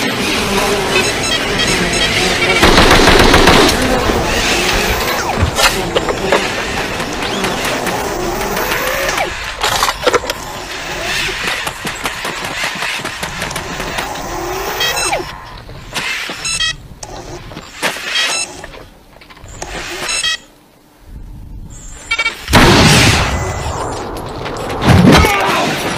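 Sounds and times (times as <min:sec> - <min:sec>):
robot servos whirring and clanking: 0:00.0 - 0:20.4.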